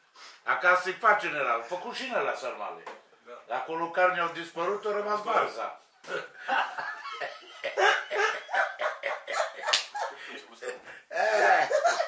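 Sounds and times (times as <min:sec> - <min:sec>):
men laughing: 0:06.3 - 0:12.0.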